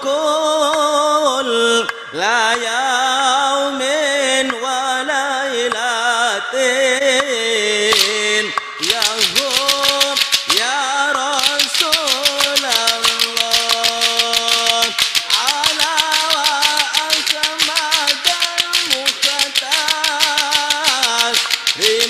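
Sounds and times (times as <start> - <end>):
person chanting: 0.0 - 22.0
crowd clapping fast: 8.0 - 8.2, 8.8 - 22.0.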